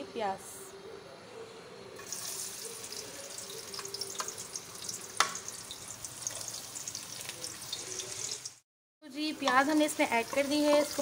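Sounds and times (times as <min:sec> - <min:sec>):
onion sizzling in hot oil: 0:02.0 - 0:08.6, 0:09.2 - 0:11.0.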